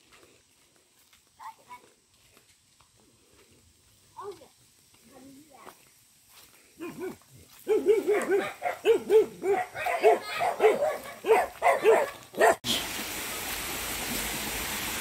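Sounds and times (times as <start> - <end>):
dog barking: 6.8 - 12.6
stream water rushing: 12.6 - 15.0.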